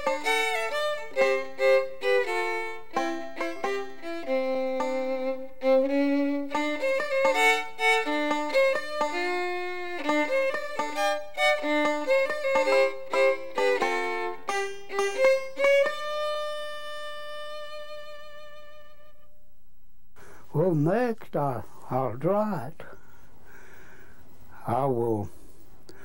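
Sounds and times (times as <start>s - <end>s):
fiddle playing a quick tune: 0.0s - 19.4s.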